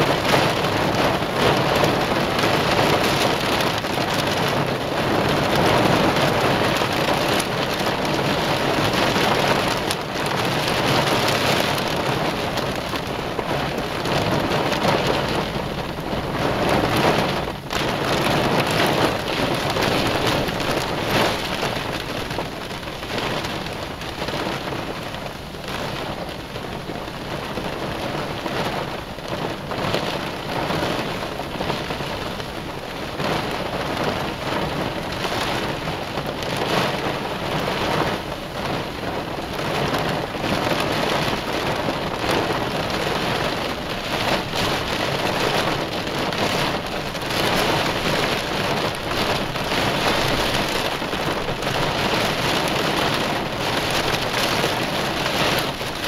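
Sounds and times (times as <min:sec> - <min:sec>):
heavy rain pelting a car: 0:00.0 - 0:56.0.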